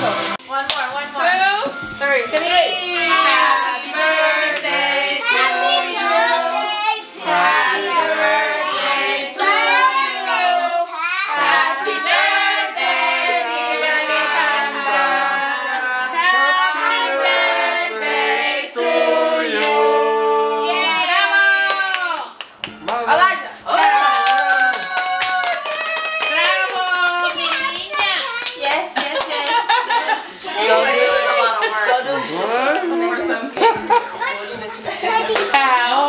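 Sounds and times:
children singing: 3.0 - 21.2.

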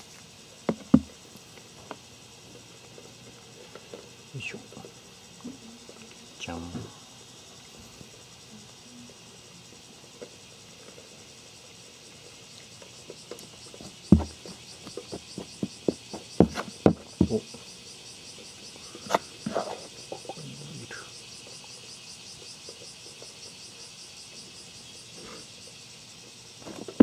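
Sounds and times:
insects chirping: 0.0 - 27.0
plastic spoon scraping soil: 19.1 - 20.0.

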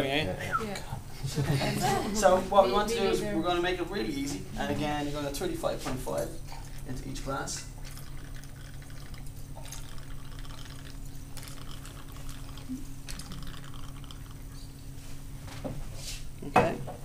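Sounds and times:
liquid pouring into glasses: 6.4 - 14.9.

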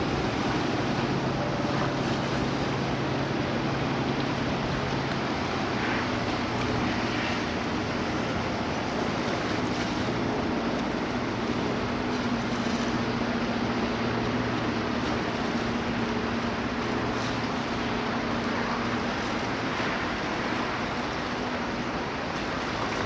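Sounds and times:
city noise: 0.0 - 23.0
distant helicopter drone: 0.0 - 23.0.

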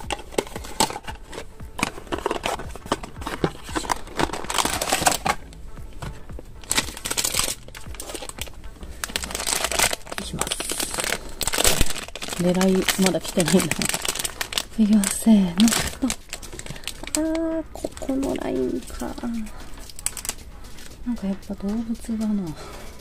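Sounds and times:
cardboard box being handled: 0.0 - 5.4
foil bag crinkling and rustling: 0.0 - 5.4, 6.6 - 22.9
background music: 0.0 - 23.0.

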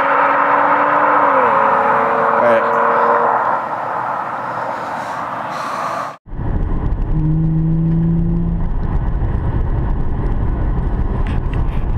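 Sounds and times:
engine drone: 0.0 - 11.9
car cabin road rumble: 4.7 - 11.9.

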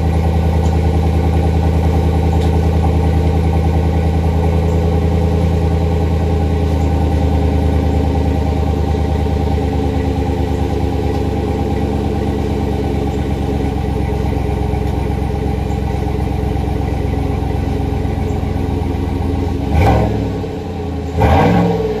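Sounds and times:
car engine idling: 0.0 - 22.0
engine revving: 19.3 - 22.0.

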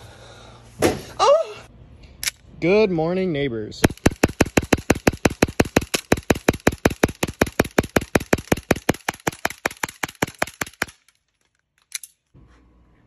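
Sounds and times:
airsoft pistol rapid shots: 3.8 - 11.0.

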